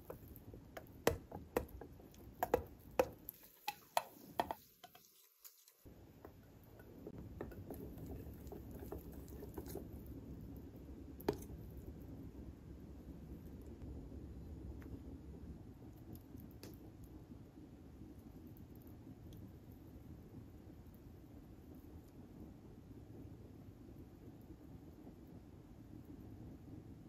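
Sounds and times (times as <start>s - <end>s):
steady low noise: 10.1s - 16.0s.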